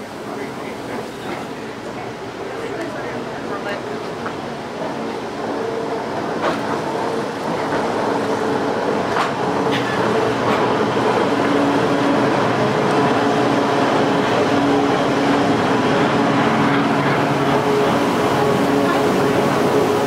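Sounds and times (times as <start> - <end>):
railcar engine hum and whine: 0.0 - 20.0
sharp clicks along the track: 9.0 - 11.7.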